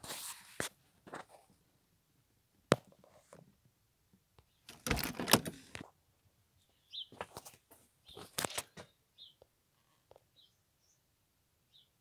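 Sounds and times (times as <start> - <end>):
camera handling clicks and rustling: 8.3 - 8.8.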